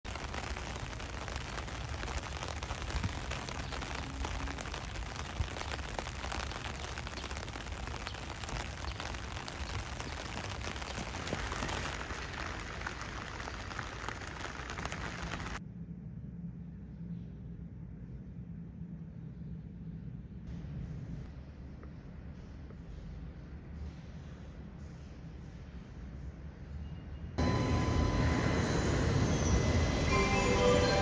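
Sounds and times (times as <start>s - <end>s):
rain falling on pavement: 0.0s - 15.6s.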